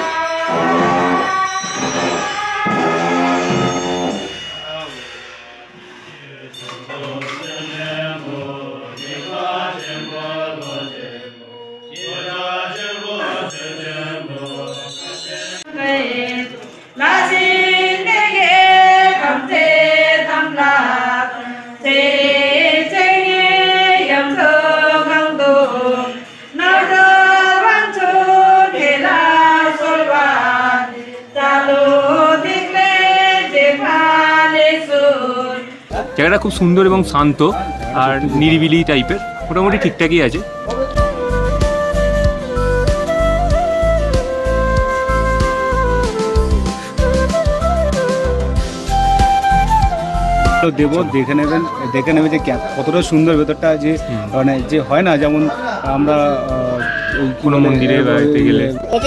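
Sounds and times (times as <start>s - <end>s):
voices chanting together: 0.0s - 5.1s, 6.0s - 36.2s.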